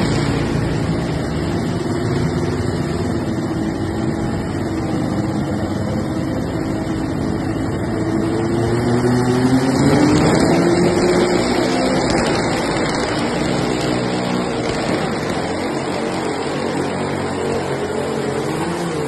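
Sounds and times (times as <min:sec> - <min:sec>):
tractor engine running under load: 0:00.0 - 0:19.0.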